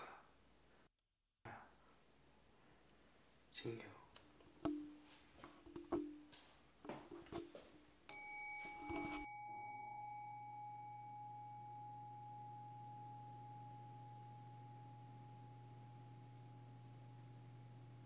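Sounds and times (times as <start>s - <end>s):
bowl bell ringing: 8.1s - 18.0s
steady low hum: 8.8s - 18.0s.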